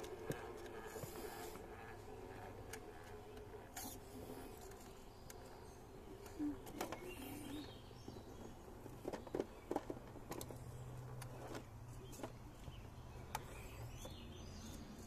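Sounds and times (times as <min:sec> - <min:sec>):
faint motor hum: 0:00.0 - 0:15.0.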